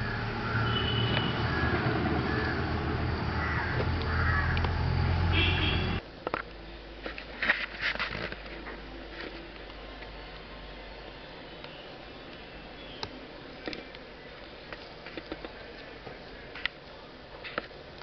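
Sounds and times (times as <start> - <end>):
birds calling: 0.0 - 6.0, 11.2 - 13.3.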